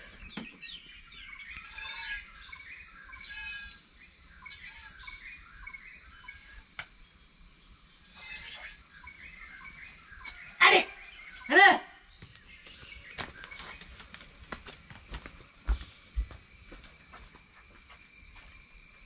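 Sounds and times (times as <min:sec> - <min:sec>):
birds chirping and calling: 0:00.0 - 0:06.6, 0:08.1 - 0:14.1
high insect drone: 0:00.0 - 0:19.0.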